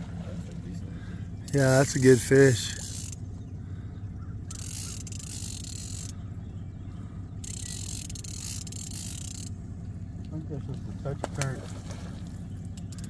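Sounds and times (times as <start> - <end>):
steady low hum: 0.0 - 13.0
fishing reel buzzing: 1.4 - 3.3, 4.4 - 6.2, 7.4 - 9.6.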